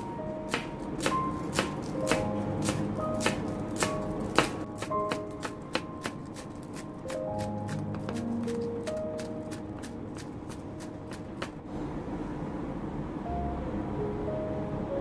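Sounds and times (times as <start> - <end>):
background music: 0.0 - 11.5
knife chopping on wooden board: 0.5 - 11.6.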